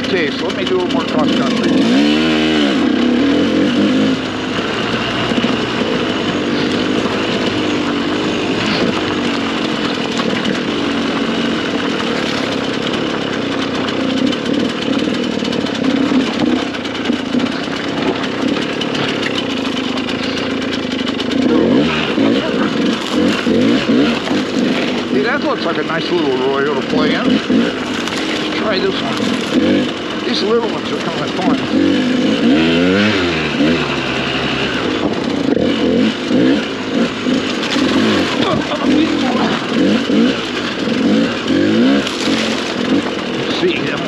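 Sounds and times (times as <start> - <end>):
dirt bike engine running: 0.0 - 44.0
dirt bike throttle blips: 0.0 - 44.0.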